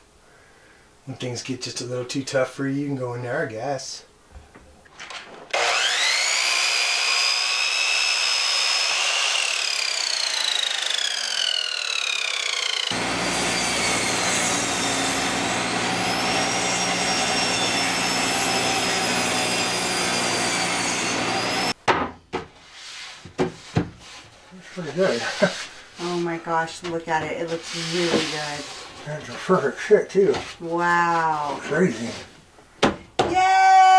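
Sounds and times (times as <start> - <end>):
miter saw whining: 5.5 - 21.8
table saw running: 5.5 - 21.8.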